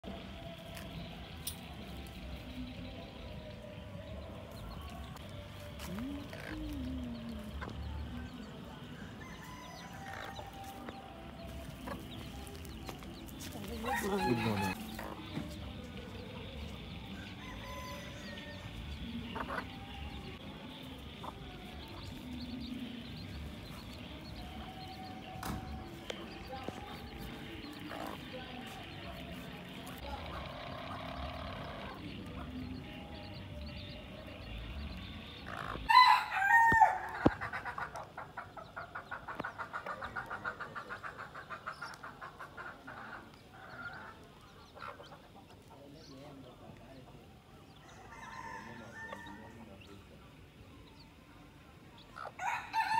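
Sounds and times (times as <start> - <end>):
chicks peeping: 0.0 - 52.9
outdoor background noise: 0.0 - 52.9
hen clucking: 5.8 - 8.1, 11.4 - 16.8, 37.2 - 45.7.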